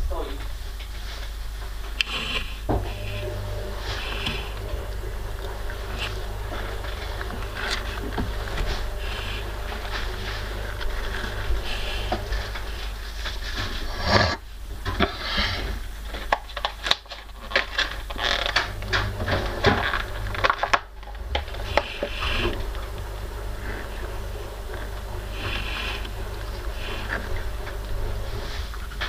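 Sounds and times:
low hum: 0:00.0 - 0:17.0, 0:17.8 - 0:29.0.

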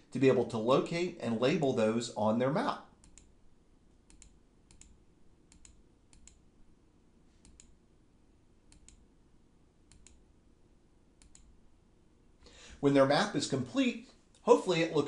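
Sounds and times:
faint room hiss: 0:00.0 - 0:15.0
computer mouse clicks: 0:03.0 - 0:03.3, 0:04.0 - 0:06.5, 0:07.4 - 0:07.8, 0:08.7 - 0:09.1, 0:09.9 - 0:10.2, 0:11.2 - 0:11.5.

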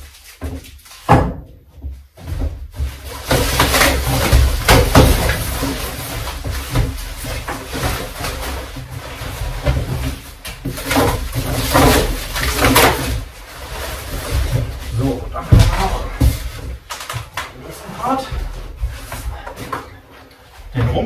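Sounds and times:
plastic and cardboard crinkling: 0:00.0 - 0:21.0.

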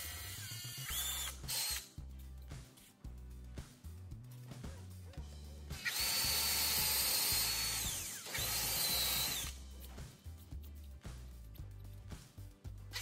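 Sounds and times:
power drill whining: 0:00.0 - 0:01.8, 0:05.8 - 0:09.5.

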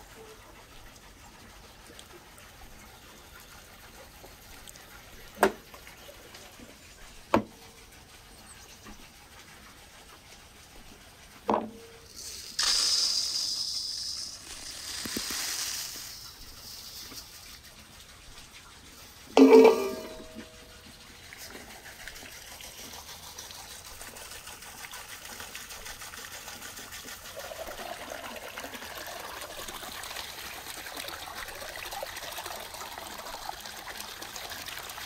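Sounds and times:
rice pouring into a bowl: 0:12.1 - 0:17.5.

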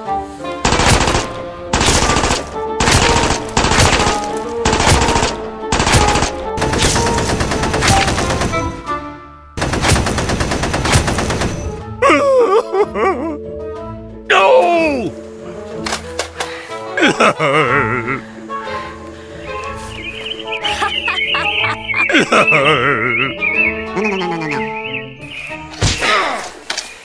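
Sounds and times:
automatic gunfire sound effects: 0:00.7 - 0:08.6, 0:09.6 - 0:11.7.

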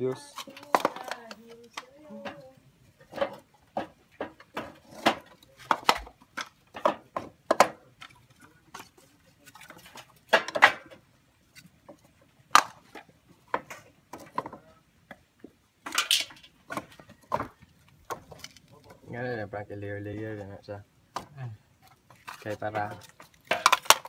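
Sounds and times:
coconut shells knocking together: 0:00.1 - 0:02.4, 0:03.0 - 0:08.9, 0:09.8 - 0:11.0, 0:12.5 - 0:18.6, 0:22.1 - 0:24.0.

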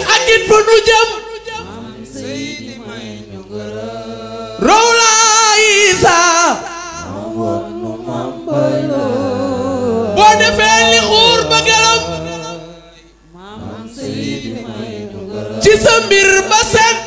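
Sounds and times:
person singing a religious chant: 0:01.2 - 0:17.0
steady low hum: 0:05.7 - 0:17.0.

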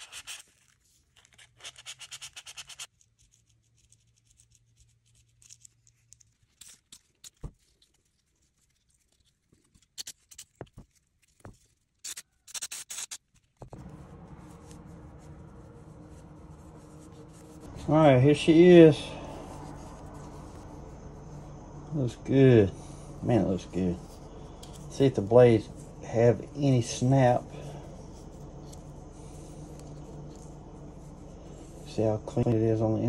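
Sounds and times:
sandpaper rubbing by hand: 0:00.0 - 0:05.7
steady background hiss: 0:13.8 - 0:33.0.

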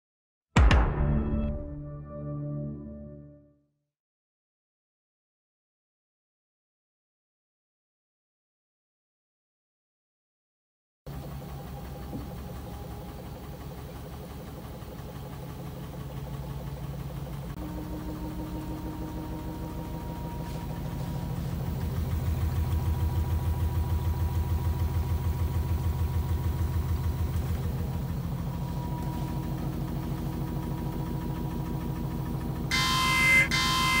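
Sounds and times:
music sting: 0:00.6 - 0:03.5, 0:17.6 - 0:23.0
washing machine running: 0:11.1 - 0:34.0.

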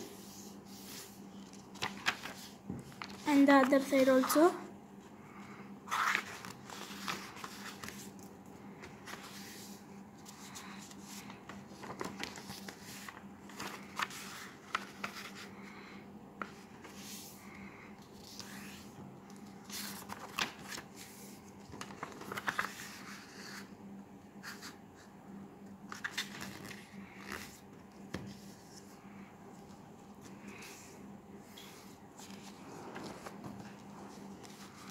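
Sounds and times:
faint steady hum: 0:00.0 - 0:34.9
paper rustling and crackling: 0:00.2 - 0:04.4, 0:05.9 - 0:15.5, 0:18.1 - 0:23.7, 0:25.8 - 0:28.9, 0:31.4 - 0:34.9.

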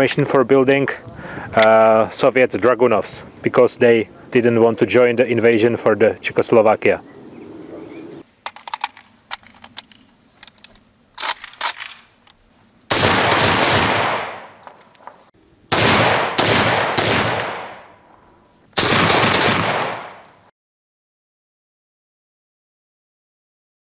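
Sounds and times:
light metallic rifle clicks: 0:08.4 - 0:12.4
loud rifle shots echoing: 0:12.9 - 0:14.6, 0:15.7 - 0:18.0, 0:18.8 - 0:20.2.

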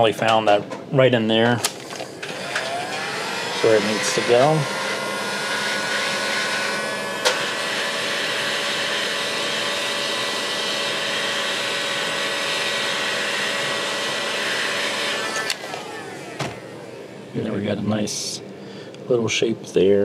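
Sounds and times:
heat gun blowing: 0:01.7 - 0:17.2.

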